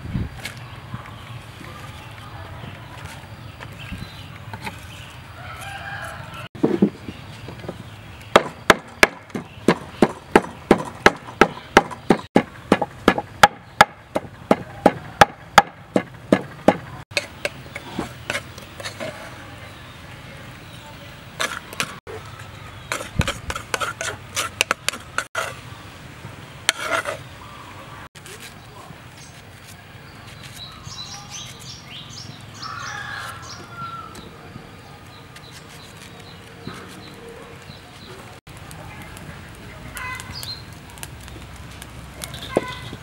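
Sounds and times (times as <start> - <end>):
pestle pounding in wooden mortar: 8.3 - 19.0, 22.9 - 25.5.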